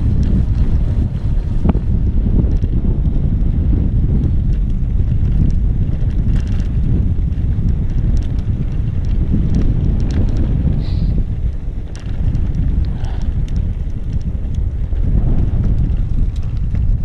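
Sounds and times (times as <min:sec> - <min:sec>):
wind rumbling on microphone: 0:00.0 - 0:17.0
light clicks and rattles: 0:04.2 - 0:17.0.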